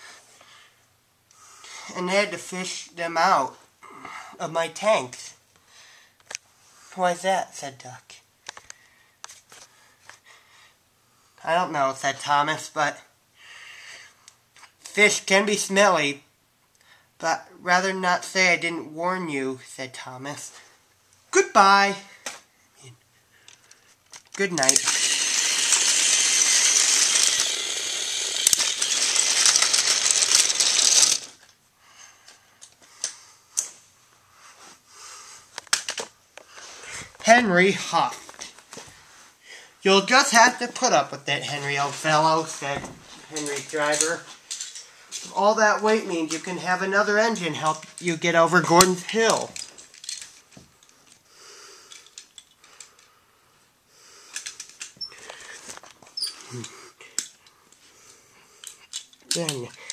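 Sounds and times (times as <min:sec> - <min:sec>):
soft breathing: 0:05.6 - 0:07.0, 0:08.6 - 0:11.4
toy train rattling on track: 0:24.4 - 0:31.4, 0:43.3 - 0:44.9, 0:46.4 - 0:50.9, 0:51.8 - 0:53.1, 0:58.6 - 0:59.9.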